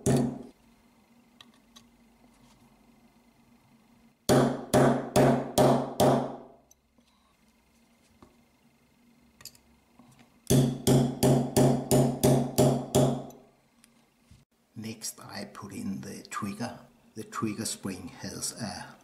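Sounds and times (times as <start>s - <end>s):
hammer tapping metal punch: 0.0s - 0.5s, 10.5s - 13.4s.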